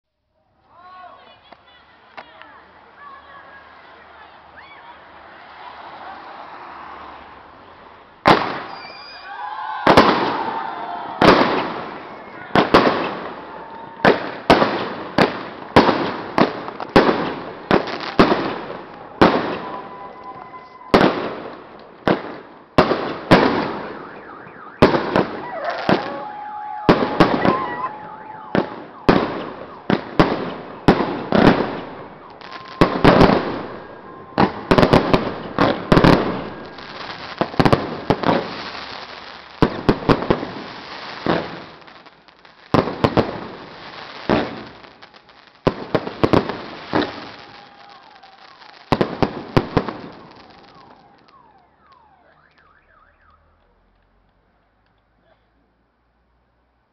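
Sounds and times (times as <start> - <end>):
fireworks bangs echoing: 8.2 - 52.7.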